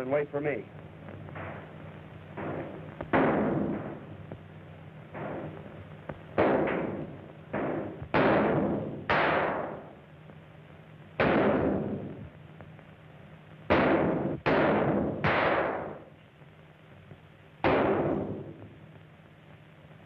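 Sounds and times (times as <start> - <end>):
low soundtrack hum: 0.0 - 20.0
gunshots: 2.3 - 4.1, 5.1 - 5.6, 6.3 - 10.0, 11.2 - 12.2, 13.7 - 16.1, 17.6 - 18.7.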